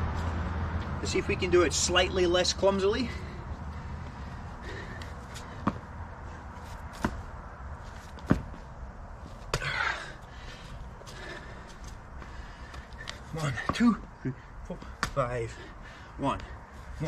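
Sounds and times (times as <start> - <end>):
hands and feet thudding on asphalt: 0.0 - 17.0
feet scuffing on asphalt: 3.2 - 9.6.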